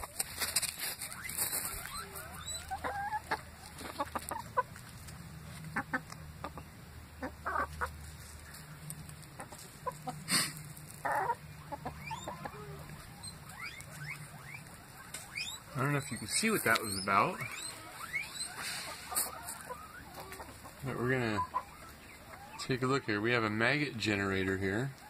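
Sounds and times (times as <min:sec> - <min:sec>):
hens clucking: 0:00.0 - 0:25.0
pecking clicks on dry ground: 0:12.8 - 0:15.5.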